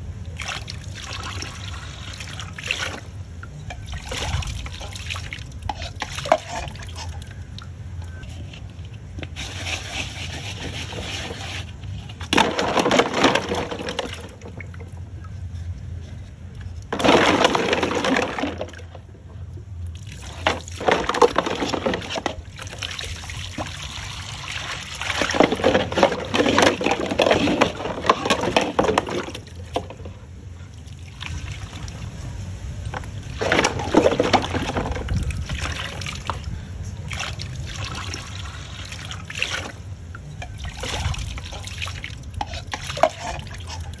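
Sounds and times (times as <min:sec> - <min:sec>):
water splashing in a basin: 0:00.3 - 0:07.8, 0:08.8 - 0:15.3, 0:16.8 - 0:19.0, 0:19.9 - 0:30.0, 0:30.7 - 0:44.0.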